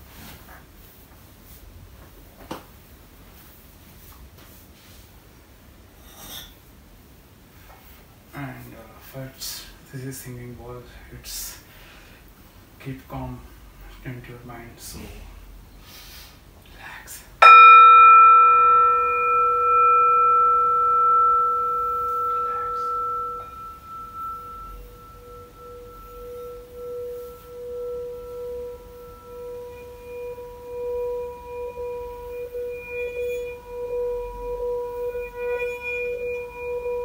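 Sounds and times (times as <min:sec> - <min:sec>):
mallet rubbing bowl rim: 0:17.4 - 0:37.0
singing bowl ringing: 0:17.4 - 0:37.0.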